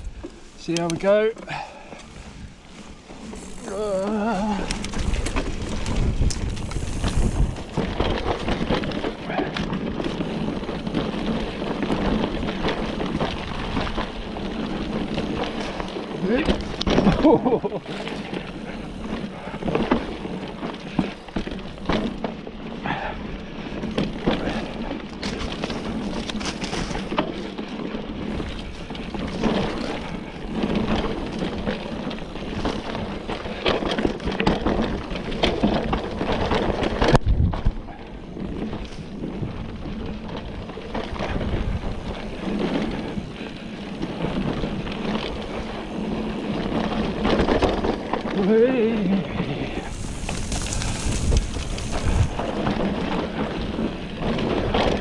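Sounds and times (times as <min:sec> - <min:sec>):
bike rattling and knocking: 0:00.0 - 0:55.0
bike tyres rolling on dirt trail: 0:00.0 - 0:55.0
wind buffeting microphone: 0:01.6 - 0:21.9, 0:28.1 - 0:55.0.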